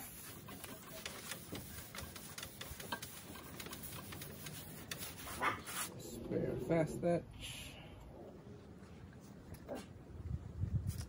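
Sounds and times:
paper towel wiping sheet steel: 0:00.0 - 0:06.2.

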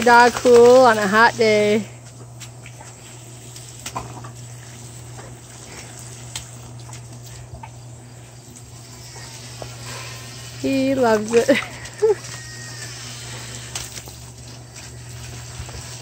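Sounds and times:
hose nozzle spraying water: 0:08.7 - 0:16.0.

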